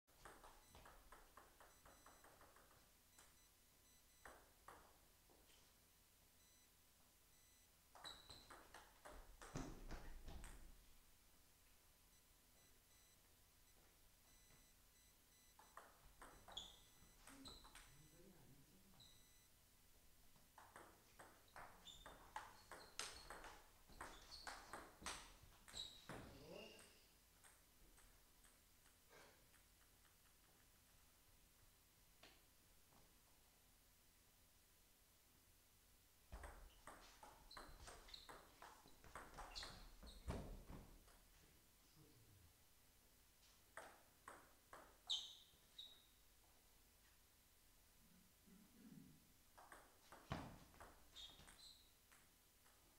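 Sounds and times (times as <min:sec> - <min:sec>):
table tennis ball bouncing on table: 0:00.2 - 0:03.3, 0:04.2 - 0:05.0, 0:07.9 - 0:10.8, 0:15.6 - 0:18.1, 0:20.4 - 0:30.2, 0:36.3 - 0:41.2, 0:43.7 - 0:45.2, 0:49.5 - 0:52.8.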